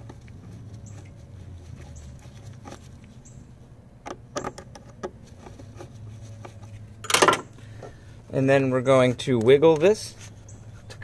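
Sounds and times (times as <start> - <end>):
low steady hum: 0.0 - 11.0.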